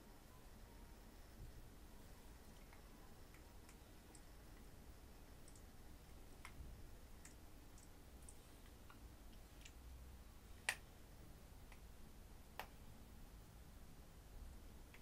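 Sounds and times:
faint irregular clicks: 2.4s - 10.9s, 11.6s - 12.9s.

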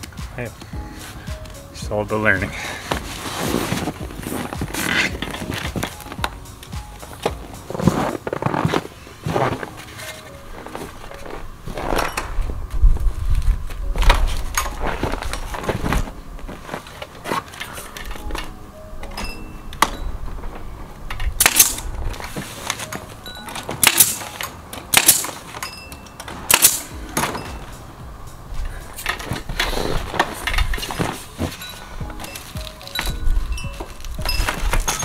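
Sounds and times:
background music: 0.0s - 35.0s
nail gun firing into wood: 21.4s - 21.8s, 23.8s - 24.3s, 24.9s - 25.4s, 26.5s - 26.9s.

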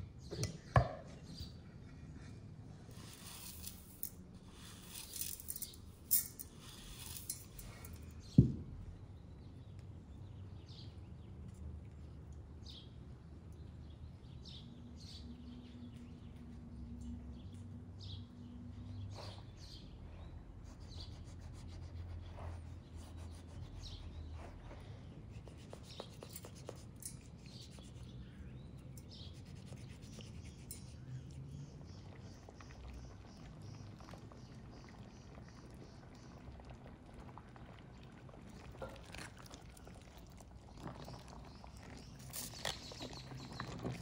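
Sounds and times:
rice grains pattering into bowl: 3.0s - 8.0s.

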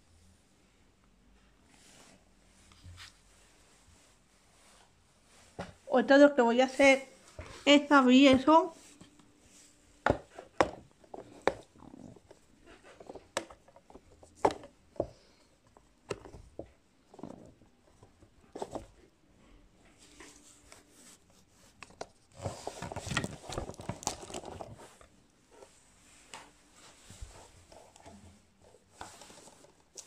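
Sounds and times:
shrink wrap crinkling and tearing: 21.6s - 25.0s.

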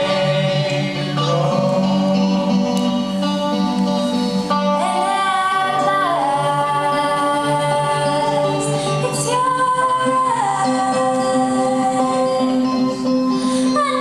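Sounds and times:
person singing: 0.0s - 3.6s, 4.5s - 14.0s
electric guitar: 0.0s - 14.0s.

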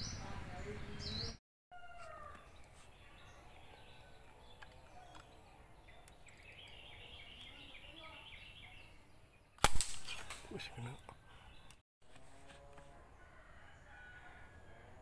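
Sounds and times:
faint bird chirping: 0.0s - 9.6s, 10.5s - 11.8s
air rifle shot crack: 9.6s - 10.5s.

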